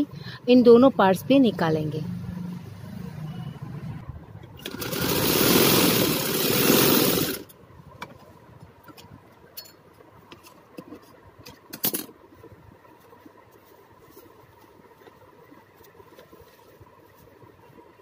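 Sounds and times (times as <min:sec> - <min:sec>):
sewing machine rattling: 0:04.6 - 0:07.5.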